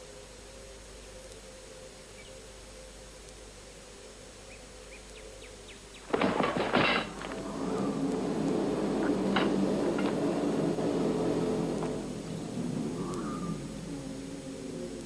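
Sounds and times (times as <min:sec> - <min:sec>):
faint steady hiss: 0:00.0 - 0:15.0
low hum: 0:00.0 - 0:15.0
loud burst of noise: 0:06.1 - 0:15.0.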